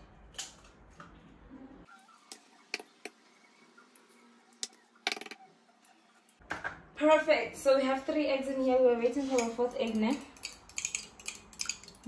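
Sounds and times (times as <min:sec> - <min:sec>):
eggs cracking against glass: 0:09.9 - 0:12.0.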